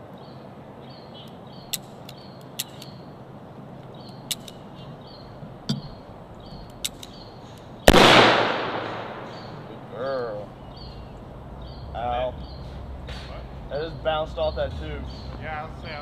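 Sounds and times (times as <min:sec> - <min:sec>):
handgun shot echoing: 0:07.9 - 0:09.7.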